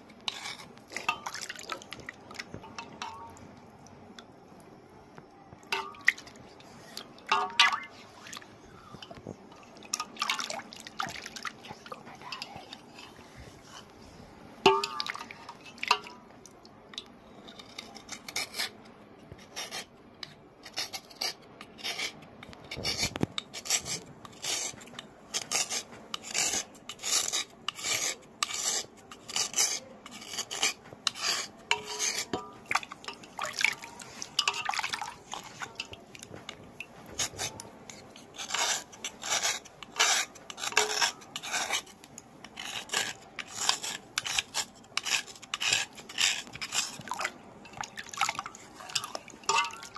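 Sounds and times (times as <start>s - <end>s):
knife scraping stone: 0.2s - 2.1s, 17.3s - 18.8s, 19.4s - 36.6s, 37.2s - 47.4s, 48.5s - 49.9s.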